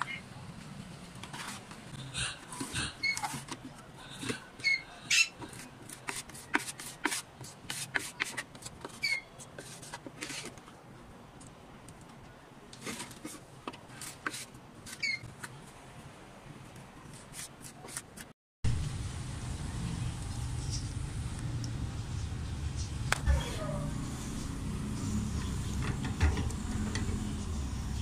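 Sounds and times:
putty knife scraping wood: 5.4s - 10.6s.

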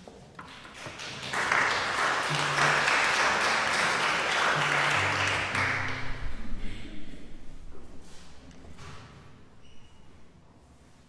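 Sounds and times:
audience applause: 0.4s - 6.4s.

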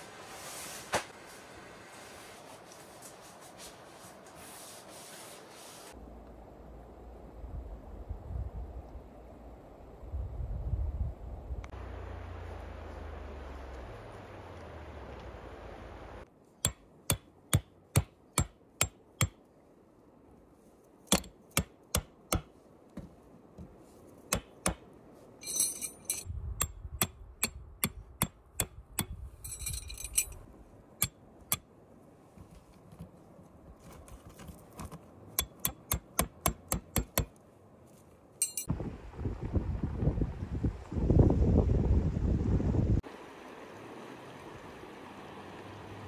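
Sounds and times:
sharp evenly spaced knocks: 16.6s - 19.4s, 21.1s - 24.9s, 35.4s - 37.4s
rustling: 32.2s - 35.3s.

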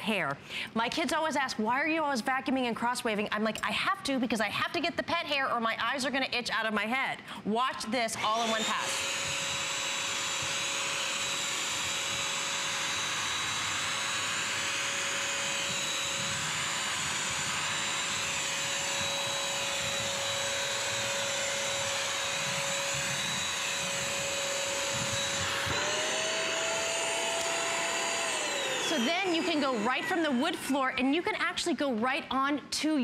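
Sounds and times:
vacuum mop motor whine: 8.2s - 31.1s.

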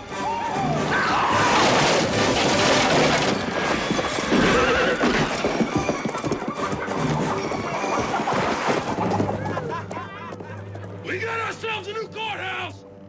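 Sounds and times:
horses galloping on dirt: 2.3s - 11.0s
horse whinnying: 3.1s - 9.5s.

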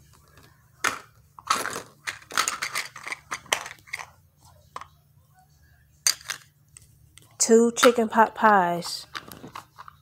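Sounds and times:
plastic toys clicking and rattling: 0.3s - 4.2s, 7.8s - 10.0s.

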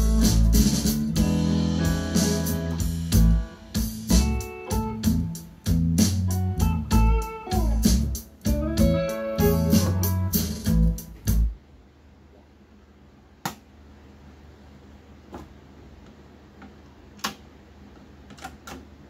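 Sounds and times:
guitar music: 0.0s - 11.5s.

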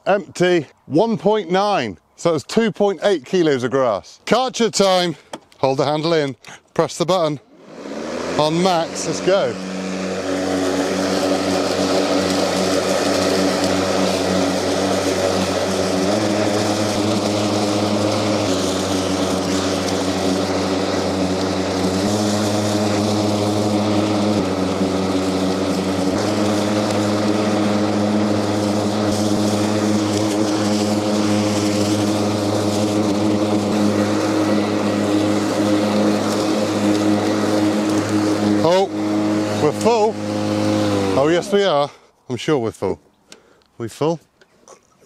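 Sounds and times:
electric lawn mower hum: 7.0s - 41.9s.

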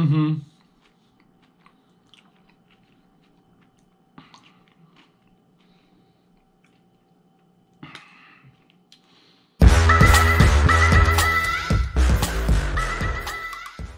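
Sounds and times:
mouth chewing and crunching: 0.4s - 9.2s.

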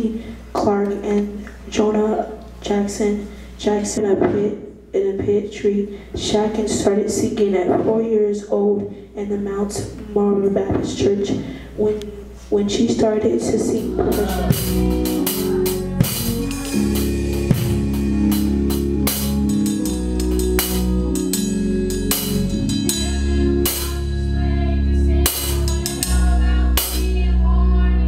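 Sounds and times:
bass line: 10.0s - 28.0s
live band music: 13.0s - 27.8s
cymbal crashes: 14.1s - 24.3s.

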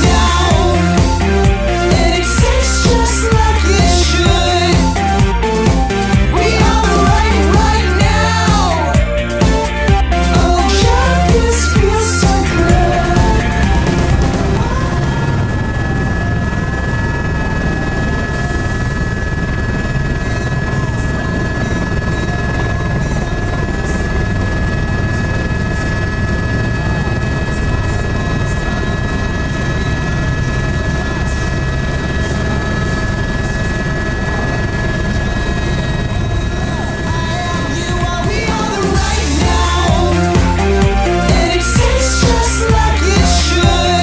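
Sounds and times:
helicopter rotor and engine rumble: 0.0s - 44.0s
high whine: 0.0s - 44.0s.

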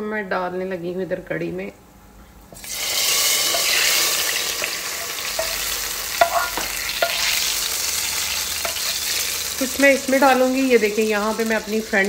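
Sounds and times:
hot oil sizzling: 2.6s - 12.0s
ladle clinking on frying pan: 4.6s - 7.4s.

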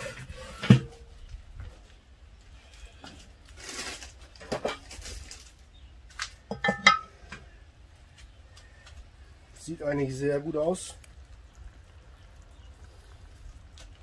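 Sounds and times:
metal lids being handled: 4.3s - 5.5s, 6.2s - 7.6s.

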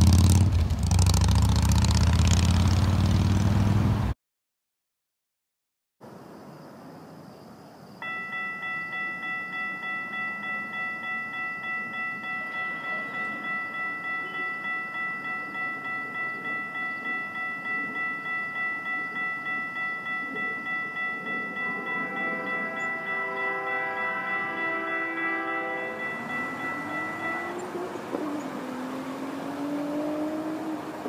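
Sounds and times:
railroad crossing bell ringing: 8.0s - 31.0s
lower tones: 14.2s - 31.0s.

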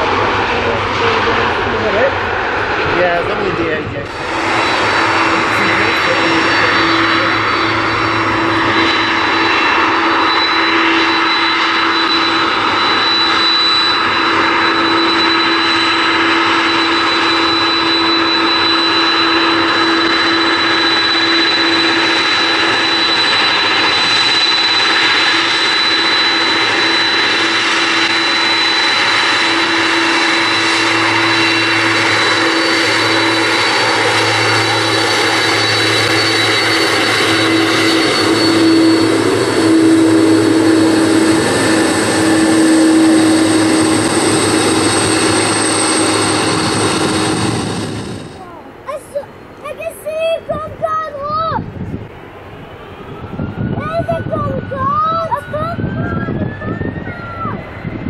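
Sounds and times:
jet engines whining: 0.0s - 58.0s.

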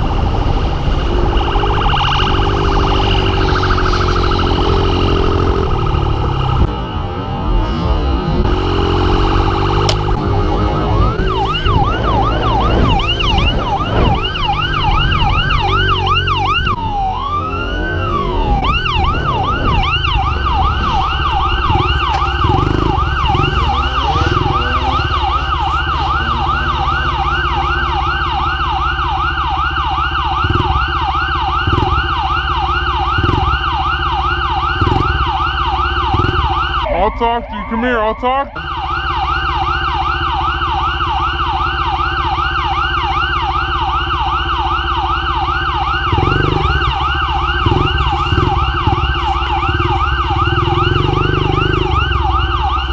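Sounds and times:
police siren yelp and wail: 0.0s - 52.9s
dirt bike engine running: 17.5s - 36.9s, 39.0s - 52.9s.

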